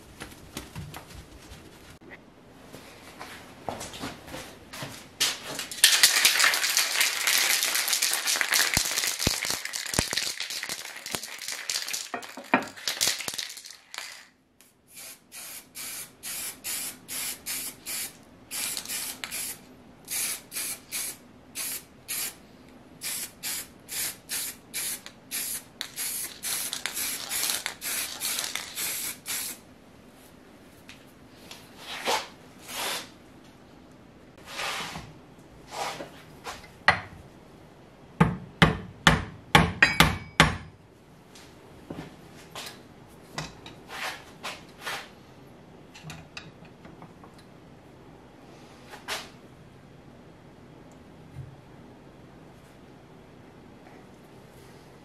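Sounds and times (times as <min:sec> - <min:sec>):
spray paint can spraying: 0:05.8 - 0:12.2, 0:12.8 - 0:14.3, 0:14.9 - 0:22.4, 0:23.0 - 0:29.6.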